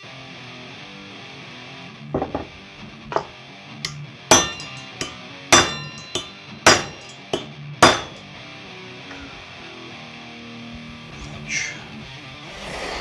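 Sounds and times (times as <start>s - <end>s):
hammer striking metal: 2.2s - 8.2s.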